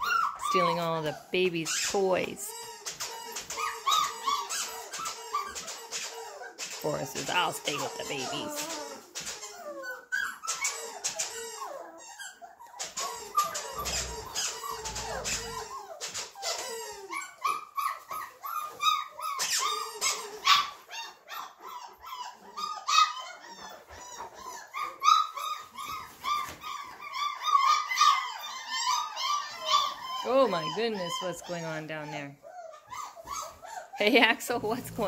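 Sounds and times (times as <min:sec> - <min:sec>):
dogs whining and squealing: 0:00.0 - 0:35.0
short repeated squeaks: 0:08.6 - 0:16.7.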